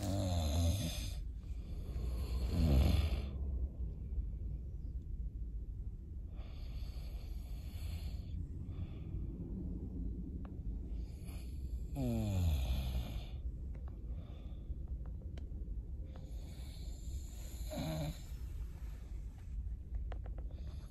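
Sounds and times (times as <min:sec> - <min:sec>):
person snoring: 0:00.0 - 0:03.4, 0:11.9 - 0:13.4, 0:16.4 - 0:18.3
steady low rumble: 0:00.0 - 0:20.9.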